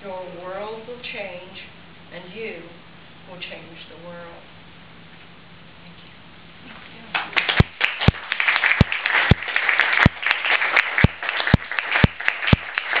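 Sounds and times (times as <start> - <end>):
audience applause: 7.2 - 13.0
single louder claps: 7.2 - 13.0.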